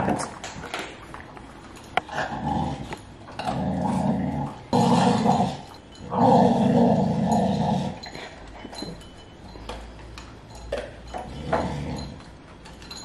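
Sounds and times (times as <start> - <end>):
dog growling: 2.1 - 8.2.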